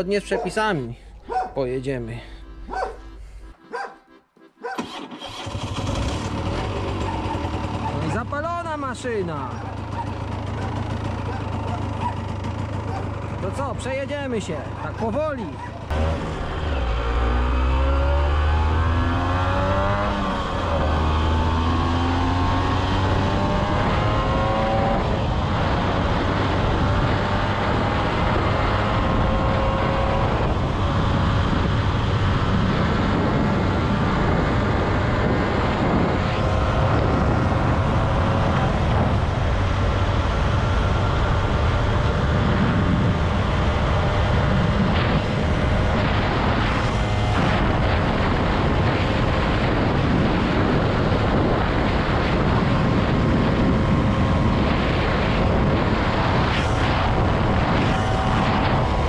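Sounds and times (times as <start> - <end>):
two-stroke motorcycle engine: 4.7 - 59.0
wind rush on microphone: 18.7 - 59.0.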